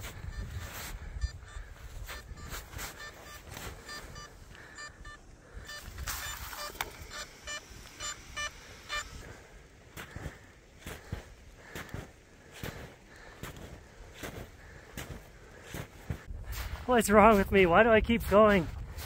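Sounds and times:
snow crunching: 0.0 - 4.8, 5.4 - 19.0
short high beeps: 0.2 - 9.2.

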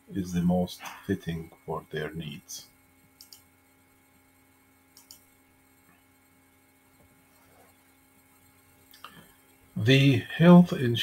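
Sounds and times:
faint steady hum: 0.0 - 11.0
faint clicks: 3.2 - 3.5, 4.9 - 5.3.

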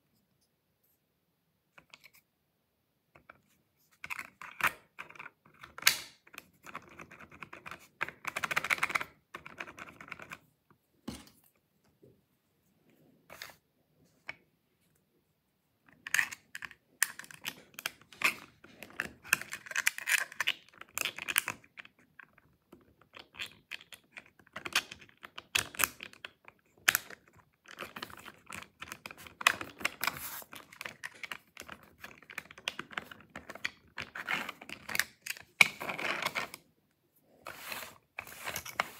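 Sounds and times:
plastic lock parts clicking: 15.9 - 21.9, 22.9 - 36.6.

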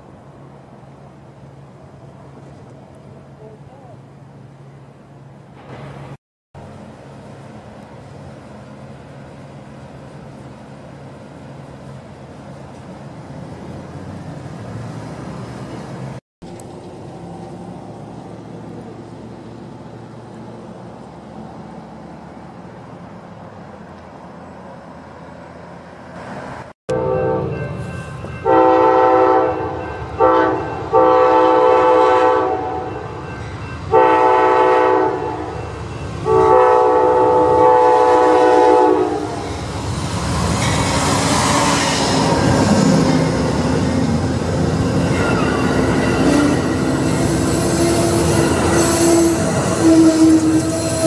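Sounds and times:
train passing with rumble: 0.0 - 51.0
train wheel noise: 5.1 - 51.0
locomotive horn blasts: 26.9 - 33.0, 33.9 - 35.6, 36.2 - 39.4, 45.8 - 51.0
wheel squeal: 44.7 - 51.0.

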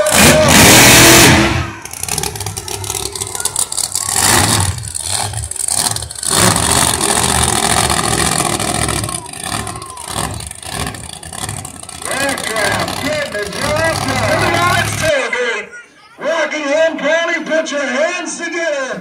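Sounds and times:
monster truck engine revving: 0.0 - 15.2.

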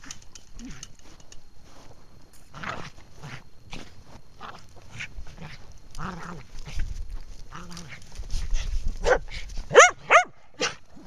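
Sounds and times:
dog yipping: 9.0 - 10.8.

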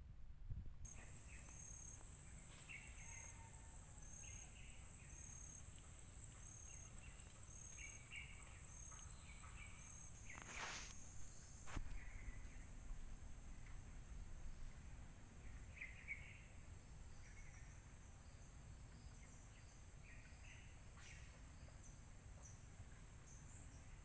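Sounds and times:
pulsing insect call: 0.9 - 14.6
insects buzzing drone: 0.9 - 20.8.

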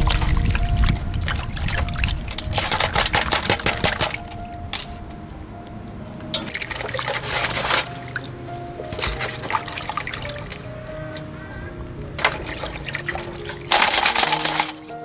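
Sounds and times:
water splashing in a steel basin: 0.0 - 5.0, 6.3 - 15.0
light background music: 0.0 - 15.0
hands handling crabs: 8.9 - 11.3, 12.1 - 15.0.

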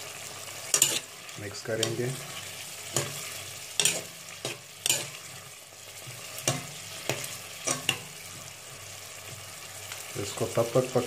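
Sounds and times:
vegetables sizzling in oil: 0.0 - 11.0
utensil scraping metal pot: 0.7 - 1.2, 1.8 - 8.5.

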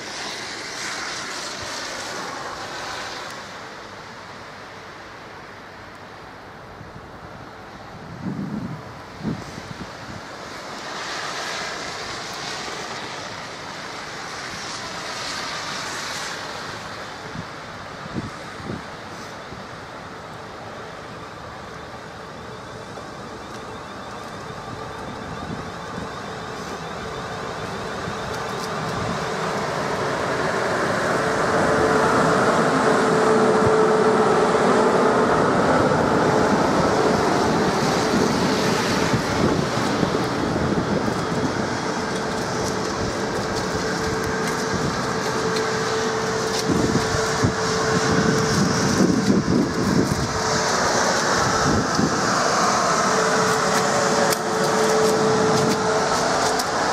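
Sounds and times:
electric train passing: 0.0 - 56.9
wheels on rails: 36.2 - 56.9.

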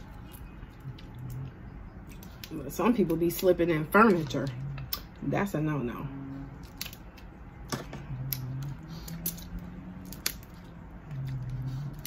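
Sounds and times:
crab shell cracking and snapping: 6.6 - 7.3, 9.1 - 10.6.

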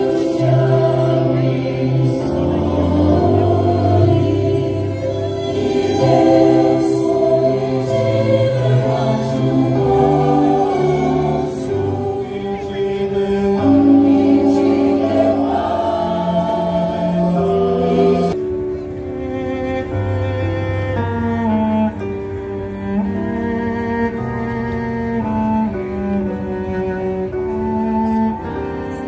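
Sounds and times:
singing voices: 0.0 - 18.4
orchestral strings: 0.0 - 29.0.

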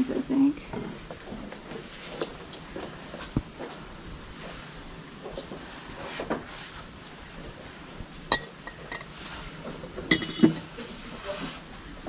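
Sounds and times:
glassware clinking: 8.3 - 9.2, 10.1 - 10.7.

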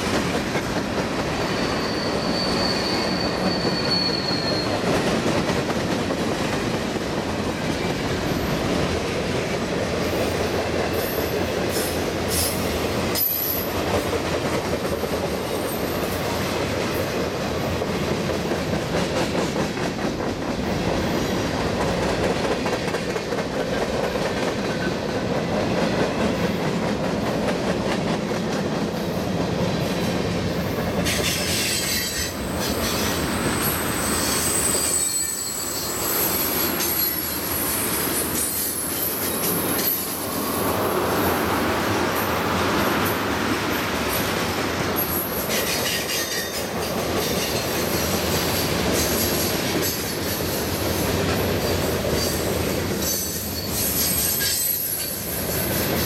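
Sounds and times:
freight train wheels rumbling: 0.0 - 56.0
high-pitched wheel squeal: 1.4 - 4.9, 31.6 - 40.1, 53.1 - 55.2.

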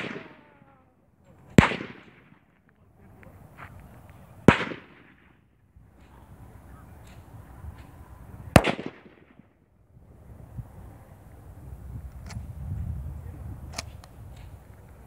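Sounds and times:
rifle shots echoing: 0.0 - 2.8, 4.4 - 7.3, 8.5 - 9.6.

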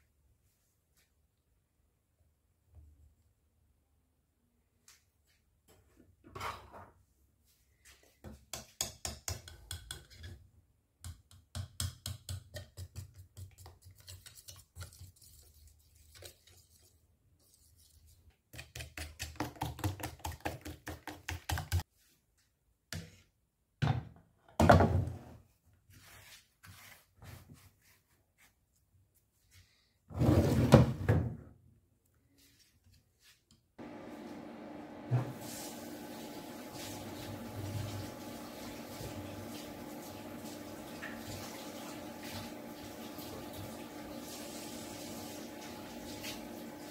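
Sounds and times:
fork beating batter in a bowl: 8.2 - 21.9.

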